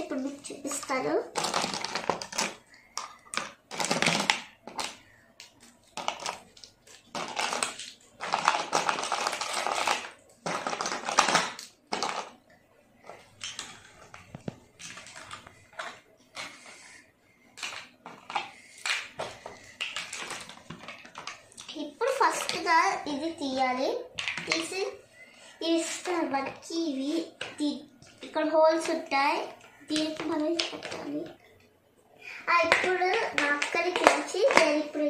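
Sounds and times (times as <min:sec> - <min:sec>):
plastic toy pieces clattering: 0:01.3 - 0:05.0, 0:06.0 - 0:12.4, 0:17.6 - 0:22.7.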